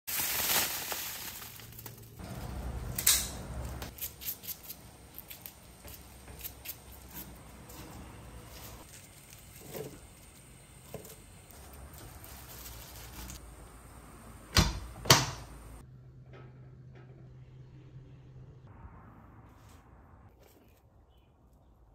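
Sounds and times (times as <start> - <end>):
garlic skins crackling: 0.1 - 13.9.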